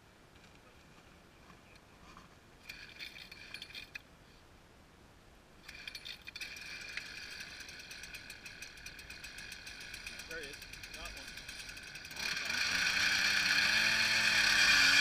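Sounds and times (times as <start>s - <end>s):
ice auger engine rattling: 2.6s - 4.0s, 5.6s - 15.0s.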